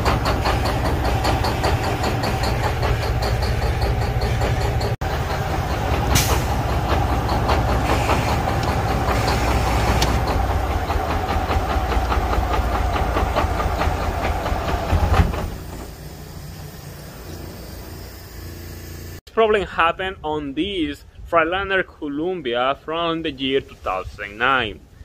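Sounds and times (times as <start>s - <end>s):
diesel engine idling roughly: 0.0s - 19.2s.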